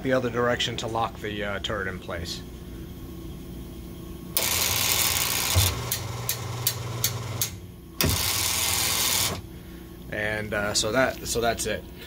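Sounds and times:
lathe turret motor running: 4.4s - 9.4s.

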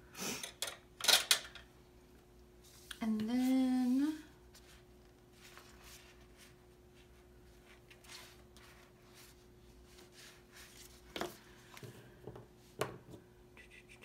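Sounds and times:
faint steady hum: 0.0s - 14.0s
paper rustling: 4.5s - 11.4s.

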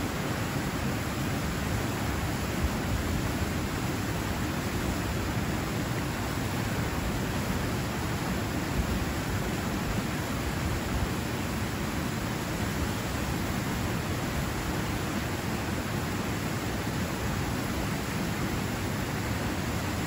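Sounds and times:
waterfall rushing over rocks: 0.0s - 20.0s.

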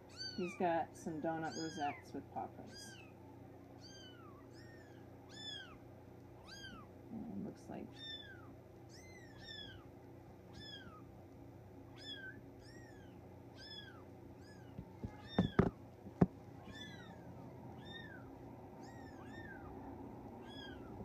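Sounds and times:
sharp knocks: 14.8s - 16.4s.

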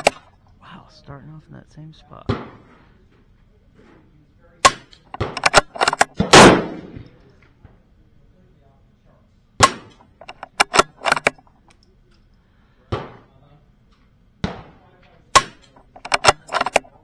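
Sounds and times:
rifle shots: 4.6s - 7.2s, 9.6s - 11.4s, 15.4s - 16.8s
rifle bolt clicking: 4.7s - 6.2s, 9.7s - 11.9s, 15.4s - 16.8s.

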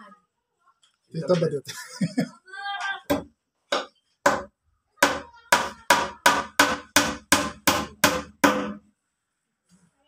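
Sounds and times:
hammer hitting plywood: 3.1s - 8.8s.

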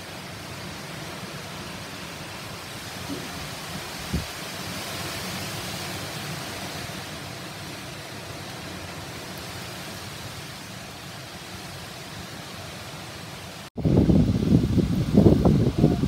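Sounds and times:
rain falling on paving: 0.0s - 16.0s.

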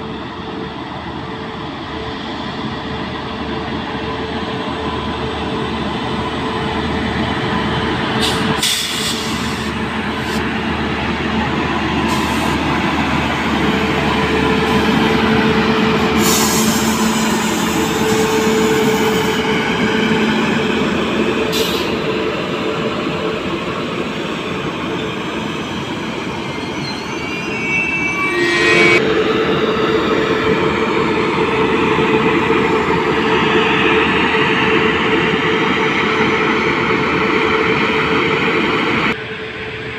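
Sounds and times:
train wheels rumbling on rails: 0.0s - 28.0s
wheel squeal: 25.8s - 29.0s.

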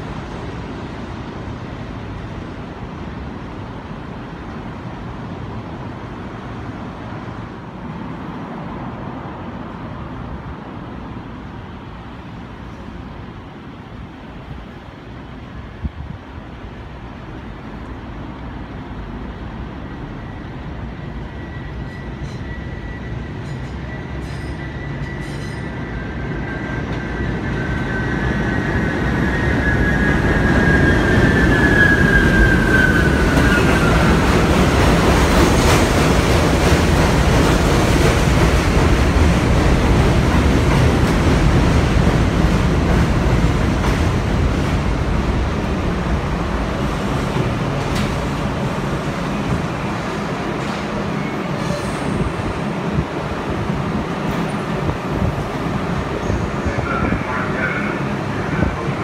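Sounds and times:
train wheels rumbling on rail: 0.0s - 59.0s
train wheels squealing: 19.8s - 34.5s, 49.3s - 52.8s, 56.1s - 56.8s.

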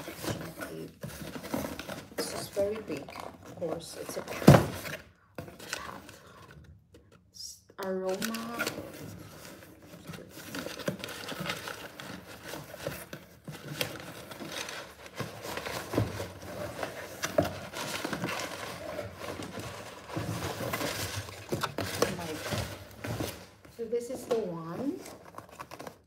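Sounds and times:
cardboard rustling: 0.0s - 6.6s, 7.8s - 26.0s.

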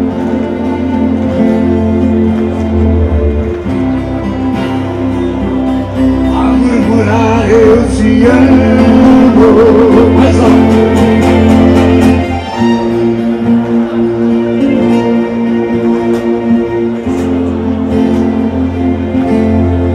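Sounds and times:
acoustic guitars: 0.0s - 19.9s
keyboard: 0.0s - 19.9s.

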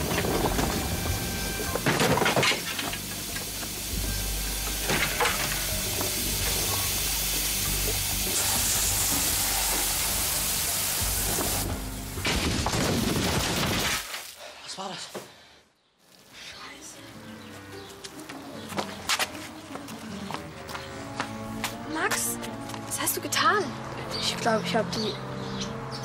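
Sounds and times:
pressurized slurry and gas spraying: 2.5s - 12.2s.

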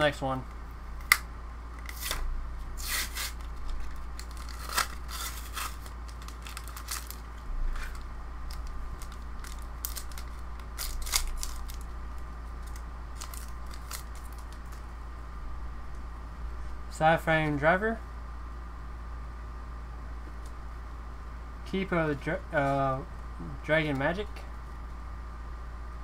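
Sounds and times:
foil wrapper crinkling and tearing: 2.8s - 12.0s, 12.6s - 14.8s.

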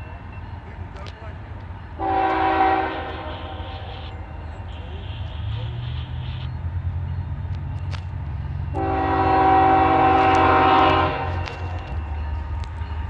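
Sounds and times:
diesel locomotive rumbling: 0.0s - 13.0s
locomotive air horn blast: 2.0s - 6.2s, 8.7s - 11.9s.

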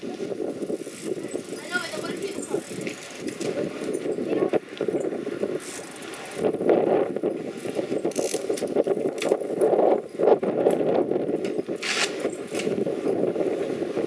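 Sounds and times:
bicycle tyres rumbling on concrete: 0.0s - 14.0s
bikes rattling: 0.0s - 14.0s
sharp clicks and jangles: 1.3s - 6.6s.

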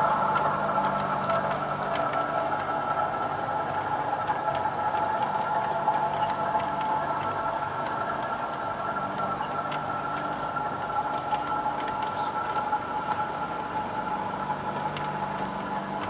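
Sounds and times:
model train humming and rolling: 0.0s - 16.0s
high squeaks: 3.7s - 15.5s.

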